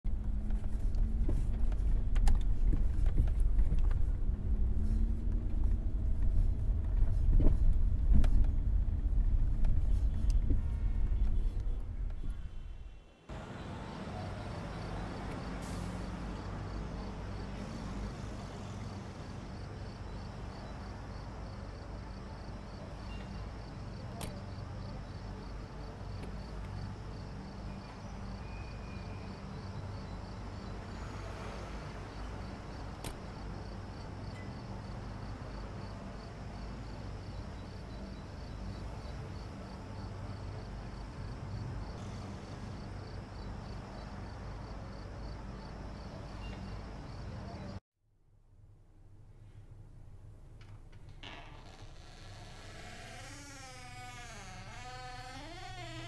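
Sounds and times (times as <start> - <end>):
distant traffic rumble: 0.1 - 47.8
crickets chirping: 13.4 - 47.8, 52.0 - 56.0.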